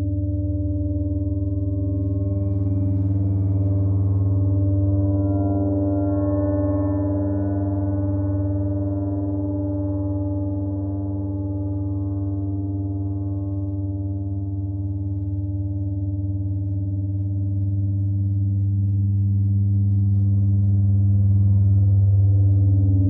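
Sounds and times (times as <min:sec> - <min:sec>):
gong drone: 0:00.0 - 0:16.8.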